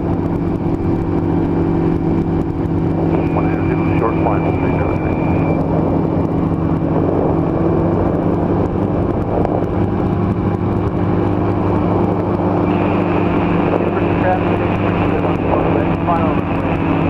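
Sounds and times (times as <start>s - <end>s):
engine and propeller droning: 0.0s - 17.0s.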